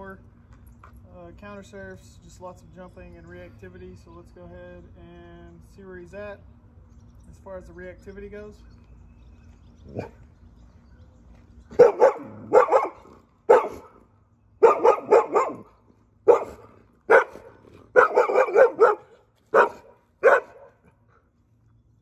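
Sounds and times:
dog barking: 11.7 - 14.0, 14.6 - 15.7, 16.3 - 20.9.

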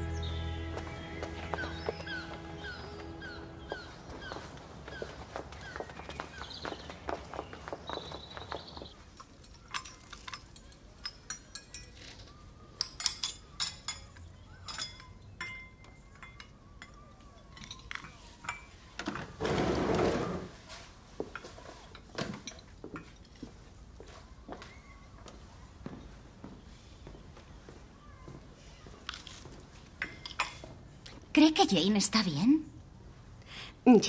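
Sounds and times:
dishes and cutlery clinking: 9.2 - 18.8.

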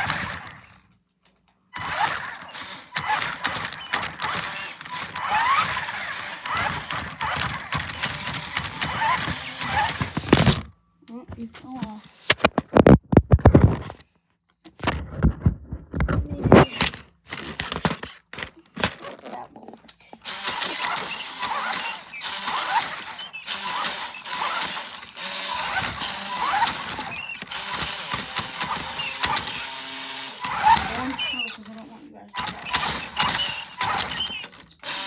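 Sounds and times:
toy car electric motor whining: 0.0 - 0.9, 1.7 - 10.6, 20.2 - 35.0
toy car being handled: 0.0 - 10.7, 11.9 - 35.0.

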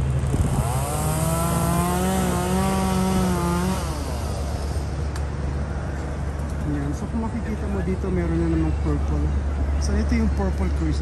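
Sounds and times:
chainsaw revving: 0.0 - 5.0
low engine hum: 0.0 - 11.0.

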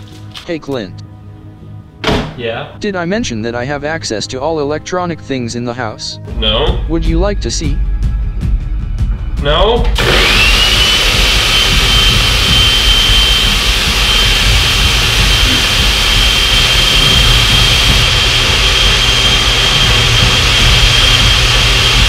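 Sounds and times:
blender motor whining: 9.9 - 22.0.

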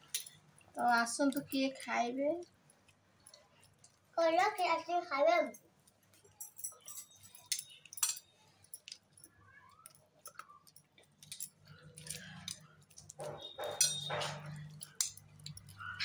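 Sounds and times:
light metallic clinks and jingles: 0.0 - 4.8, 5.4 - 16.0.

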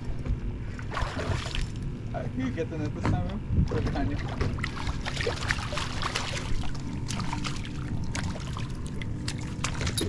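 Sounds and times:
low steady rumble: 0.0 - 10.0.

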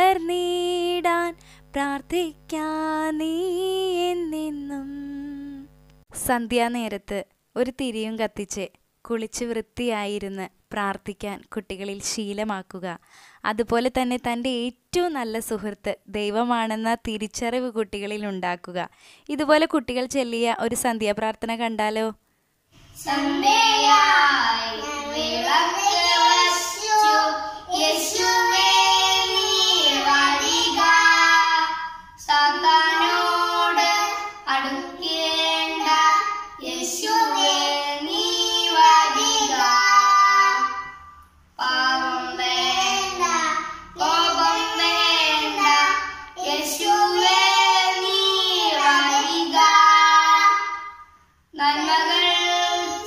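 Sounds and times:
children singing: 23.0 - 41.0, 41.6 - 50.9, 51.6 - 53.0.

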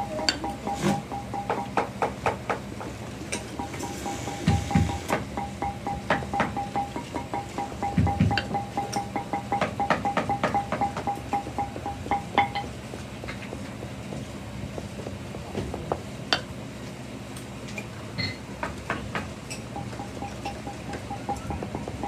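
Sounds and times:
steady low hum: 0.0 - 22.0
music with pulsing beat: 3.6 - 12.8, 19.8 - 22.0.

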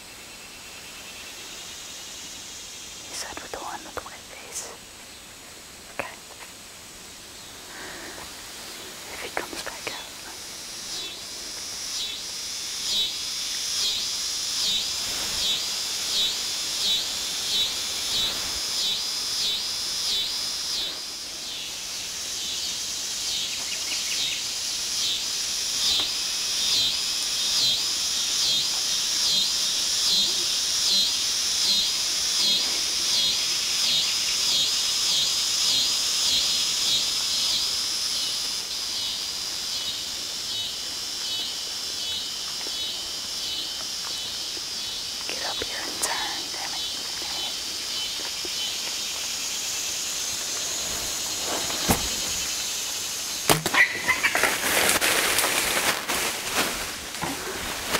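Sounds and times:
insects shrilling and pulsing: 0.0 - 57.9.

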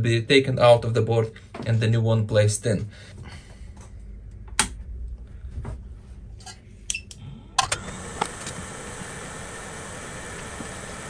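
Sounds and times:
hot air station blowing hiss: 7.7 - 11.0.

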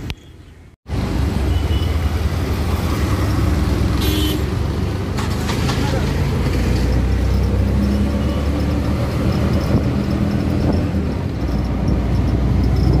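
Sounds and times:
road noise: 0.0 - 13.0
auto-rickshaw engine running: 0.9 - 13.0.

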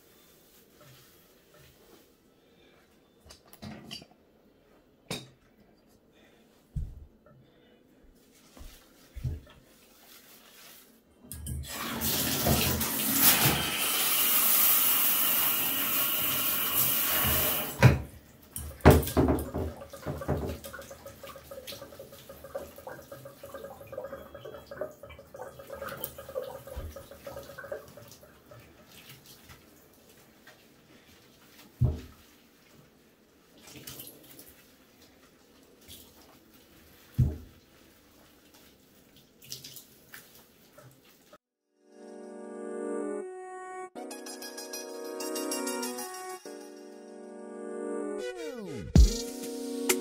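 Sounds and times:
water running into bathtub: 10.0 - 41.4
wet splashing of dogs in tub: 18.7 - 41.4.

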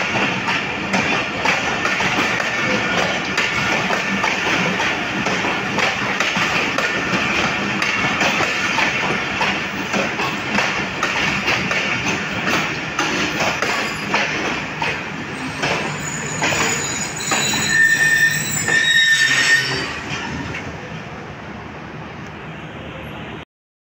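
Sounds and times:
train wheels clacking over rail joints: 0.0 - 20.7
steel-on-steel squeal: 13.6 - 14.2, 15.3 - 20.5.

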